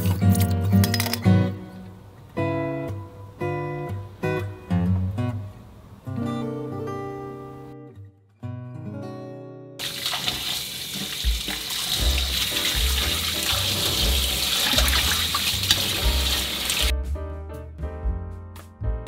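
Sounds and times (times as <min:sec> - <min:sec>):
kitchen tap running into sink: 0:09.8 - 0:16.9
water splashing on vegetables: 0:09.8 - 0:16.9.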